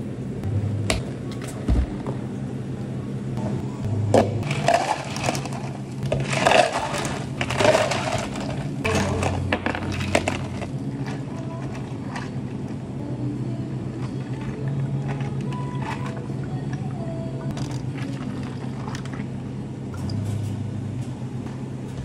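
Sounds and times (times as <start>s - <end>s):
low steady hum: 0.0s - 22.0s
ice cubes clattering into cups: 4.4s - 12.4s, 14.2s - 16.3s, 17.5s - 19.2s.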